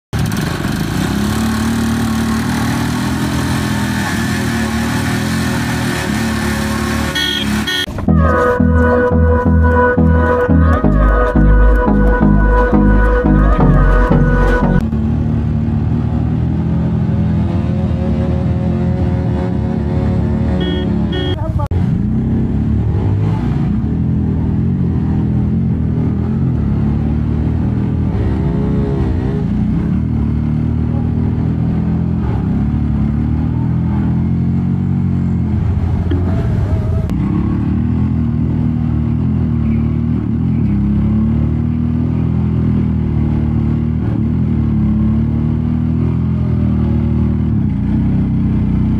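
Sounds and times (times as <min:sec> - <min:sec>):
motorcycle engines under load: 0:00.1 - 0:08.5, 0:20.6 - 0:21.7
motorcycles revving: 0:00.1 - 0:48.9
music with a pulsing beat: 0:08.1 - 0:14.8.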